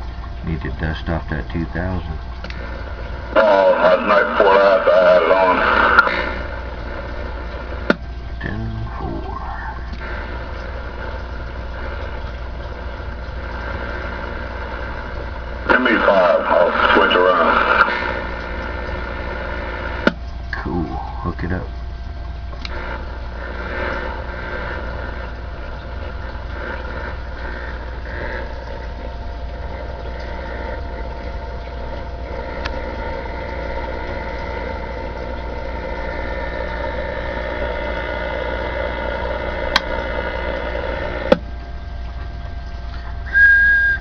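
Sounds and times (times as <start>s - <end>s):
radio static hiss: 0.0s - 41.8s
mains hum: 0.0s - 44.0s
sharp clicks: 39.7s - 40.0s
faint steady whistle: 43.2s - 44.0s.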